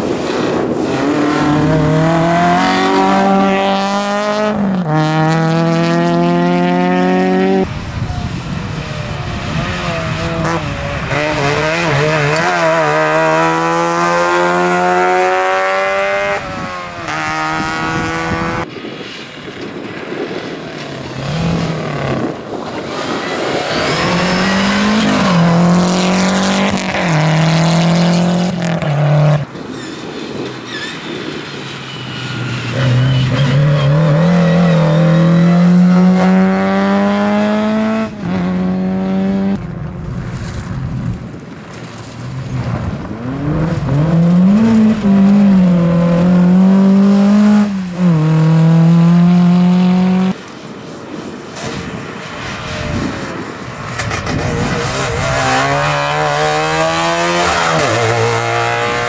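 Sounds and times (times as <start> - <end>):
rally car engines revving: 0.0 - 18.7, 20.4 - 40.8, 41.8 - 50.4, 51.6 - 59.0.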